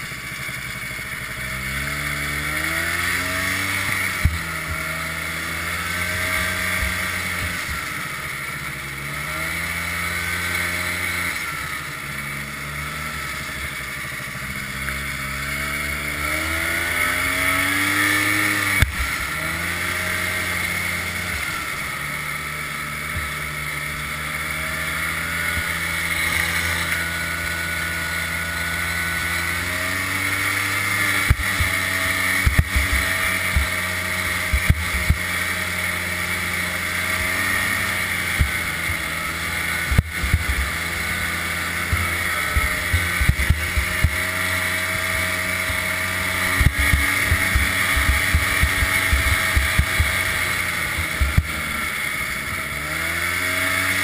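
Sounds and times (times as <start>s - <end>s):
snowmobile engine running: 0.0s - 54.0s
knocks and thumps of sled: 28.3s - 54.0s.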